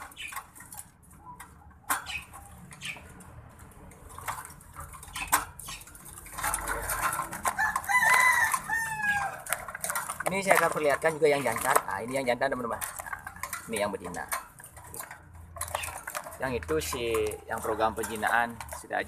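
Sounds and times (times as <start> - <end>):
wire birdcage rattling: 0.0 - 19.0
rooster crowing: 7.4 - 9.6.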